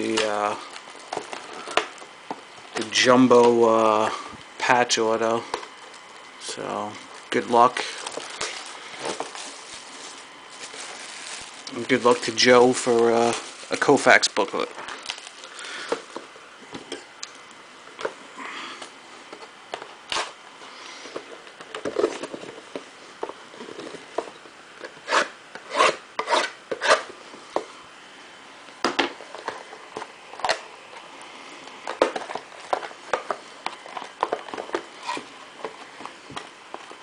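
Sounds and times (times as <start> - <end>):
plastic shrink-wrap crinkling: 0.0 - 3.5, 5.2 - 16.2.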